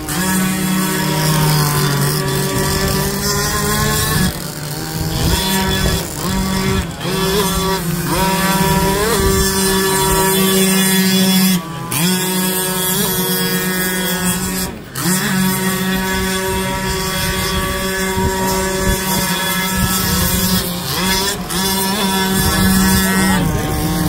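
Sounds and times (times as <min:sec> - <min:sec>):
high-pitched motor buzz: 0:00.0 - 0:24.0.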